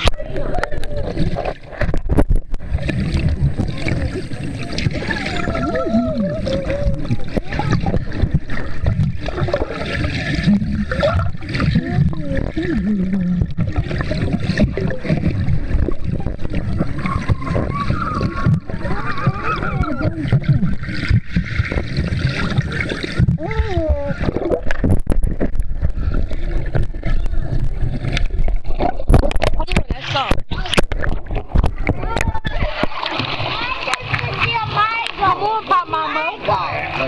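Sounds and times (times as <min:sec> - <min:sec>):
underwater sloshing and gurgling: 0:00.0 - 0:37.0
children's voices: 0:03.7 - 0:08.5, 0:14.6 - 0:20.6, 0:23.4 - 0:24.5, 0:31.9 - 0:36.8.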